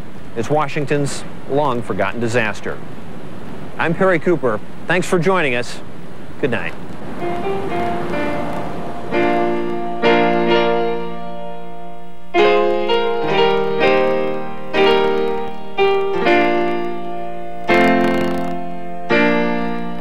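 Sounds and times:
solo piano music: 7.0 - 20.0.

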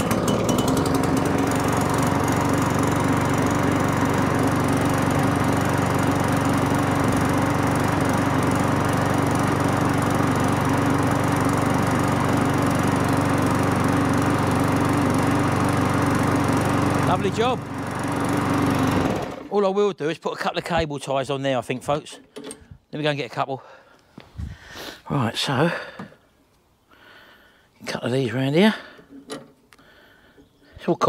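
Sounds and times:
lawn mower engine running: 0.0 - 19.7.

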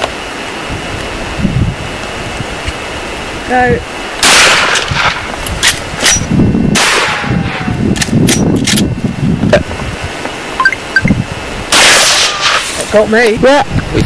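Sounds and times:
rifle shot: 4.2 - 5.2, 6.0 - 7.3, 11.7 - 12.7.

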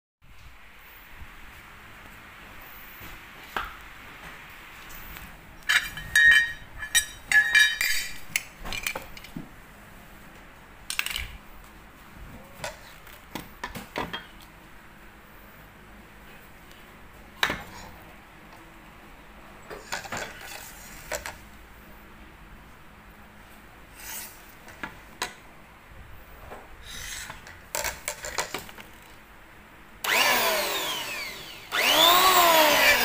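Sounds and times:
metal parts clinking: 5.7 - 9.3.

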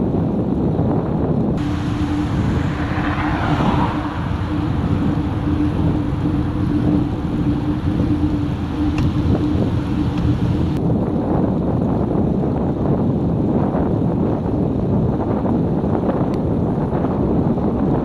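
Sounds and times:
tyre and road noise: 0.0 - 11.9
wind rushing over microphone: 0.0 - 18.0
steady low hum: 1.6 - 10.8.

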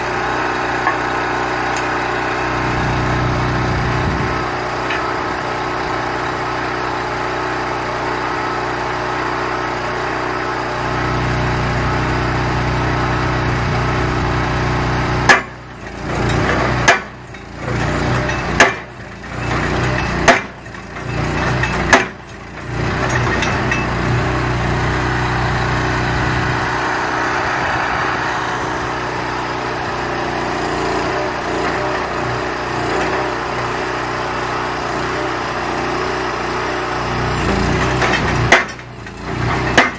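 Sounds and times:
post driver engine running: 0.0 - 39.9
hammer striking steel post: 15.3 - 15.6, 16.2 - 24.2, 37.8 - 38.9, 39.5 - 39.9.

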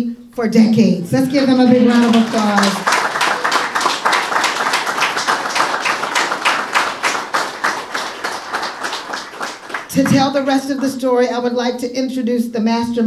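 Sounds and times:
audience applauding: 1.1 - 10.7.

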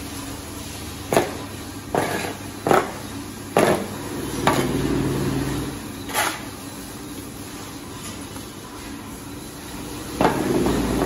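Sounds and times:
shovel scraping concrete floor: 1.1 - 3.0, 3.6 - 6.6, 10.2 - 11.0.

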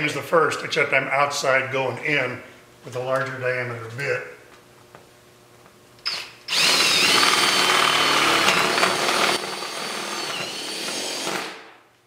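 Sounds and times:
cordless drill boring through metal: 6.1 - 11.6.

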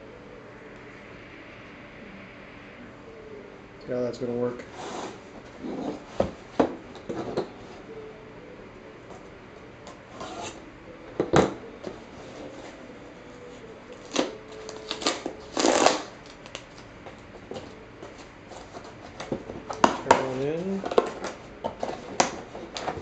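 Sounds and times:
cardboard flap ripping: 14.0 - 16.7.

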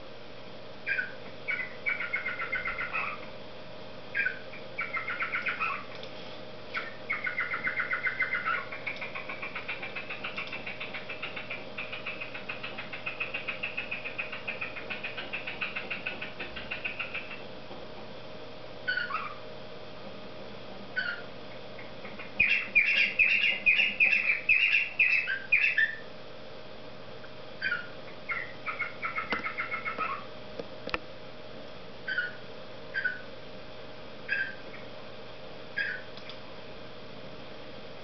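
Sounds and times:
cockatiel warbling and whistling: 0.8 - 3.2, 4.1 - 5.9, 6.8 - 17.4, 18.9 - 19.4, 21.0 - 21.3, 22.1 - 26.1, 27.6 - 30.3, 32.1 - 33.3, 34.3 - 34.8, 35.8 - 36.1.

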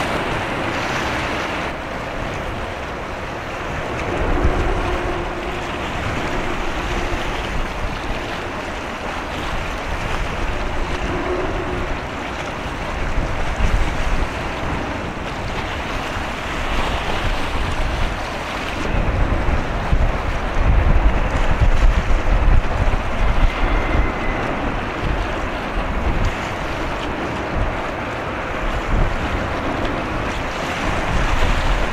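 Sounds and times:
sea water washing: 0.0 - 31.9
wind buffeting microphone: 0.0 - 31.9
low rumble: 1.6 - 15.0, 18.8 - 30.4.

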